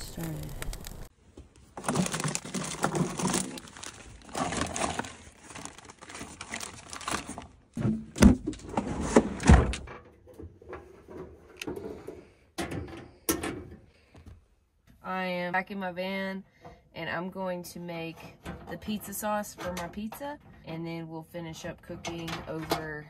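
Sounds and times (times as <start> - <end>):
rustling: 0.0 - 7.8.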